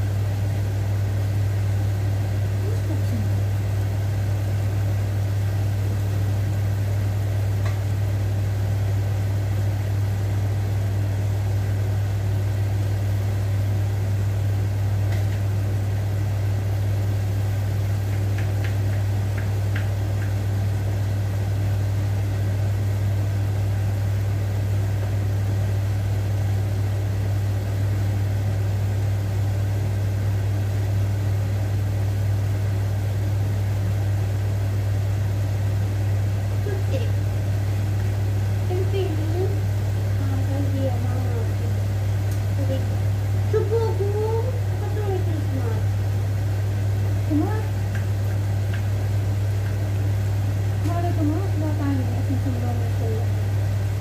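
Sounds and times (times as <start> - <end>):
water boiling in a pot: 44.6 - 54.0.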